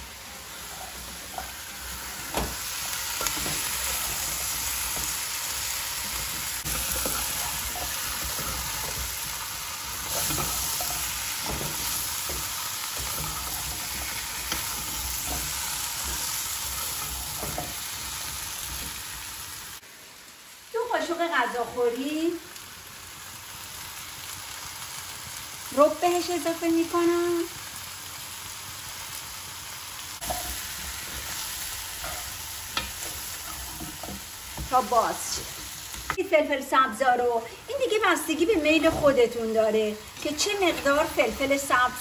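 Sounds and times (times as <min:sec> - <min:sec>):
vegetables sizzling in oil: 0:00.0 - 0:42.0
spatula scraping and knocking pot: 0:06.1 - 0:09.4, 0:10.0 - 0:19.1, 0:30.2 - 0:36.2.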